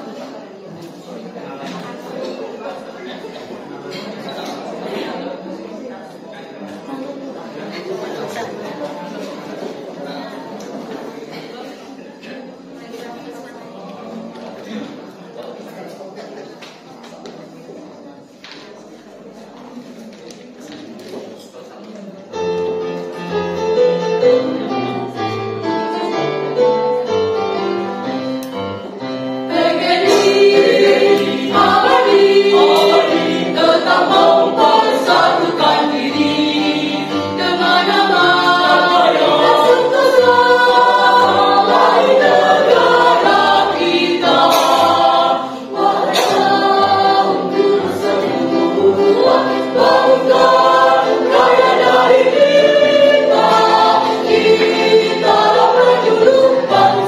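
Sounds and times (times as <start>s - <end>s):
instrumental music: 22.4s - 57.0s
mixed choir singing a march: 29.0s - 57.0s.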